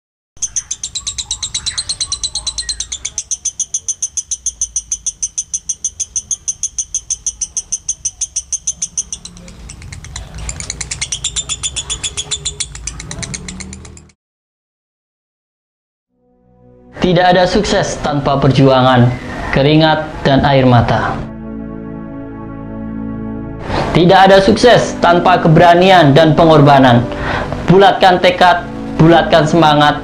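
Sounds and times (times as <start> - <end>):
bird trilling high chirps: 0.4 - 14.2.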